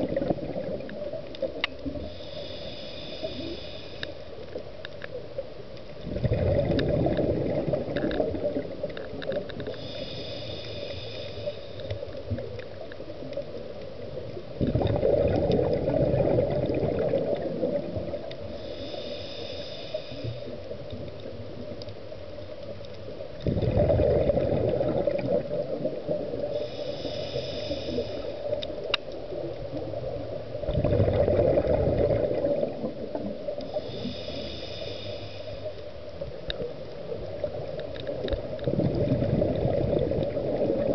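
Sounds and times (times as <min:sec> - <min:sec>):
exhaled bubbles burbling: 0:00.0 - 0:02.0, 0:06.0 - 0:09.5, 0:14.6 - 0:18.3, 0:23.4 - 0:26.6, 0:29.3 - 0:33.7, 0:37.2 - 0:40.9
hissing inhale through regulator: 0:01.4 - 0:04.7, 0:09.3 - 0:12.7, 0:18.2 - 0:20.9, 0:26.3 - 0:29.0, 0:33.6 - 0:36.4.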